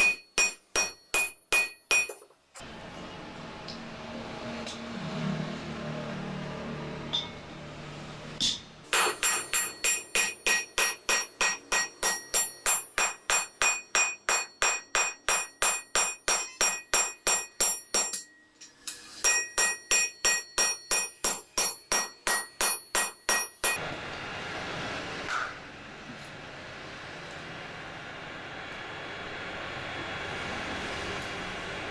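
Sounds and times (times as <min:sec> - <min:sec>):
hammer blows on anvil: 0:08.4 - 0:18.5.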